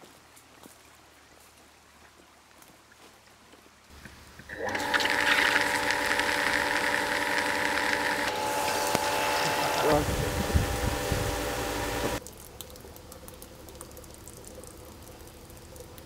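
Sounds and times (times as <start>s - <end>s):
sprinklers spraying water: 3.9s - 16.0s
steady humming tones: 4.6s - 12.2s.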